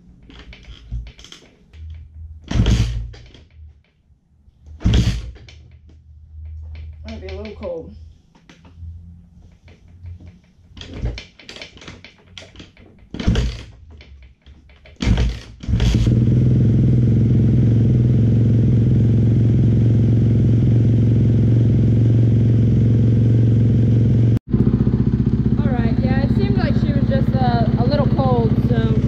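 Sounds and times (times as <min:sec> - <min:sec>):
motorcycle kick-start clatter: 0:14.9 - 0:16.6
motorcycle engine idling: 0:15.9 - 0:29.0.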